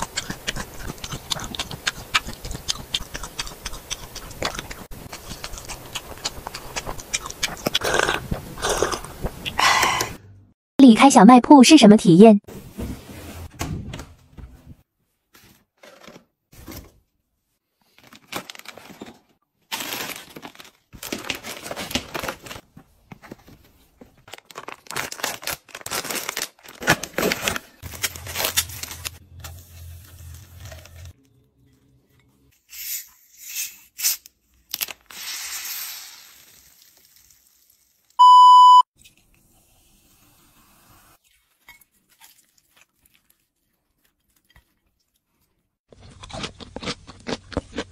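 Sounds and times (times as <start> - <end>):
food packaging crinkling: 17.8 - 31.2
electronic beep: 38.2 - 38.8.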